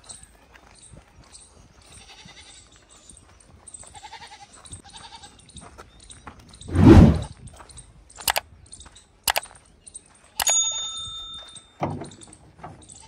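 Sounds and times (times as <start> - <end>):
faint animal bleating: 1.9 - 2.6, 3.8 - 5.4
sharp clicks: 8.2 - 8.4, 9.3 - 9.5, 10.4 - 10.6.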